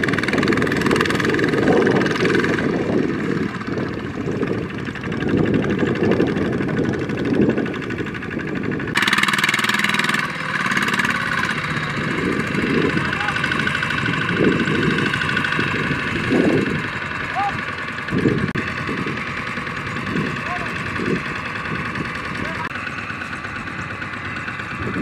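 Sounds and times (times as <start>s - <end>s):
diesel tractor engines running: 0.0s - 25.0s.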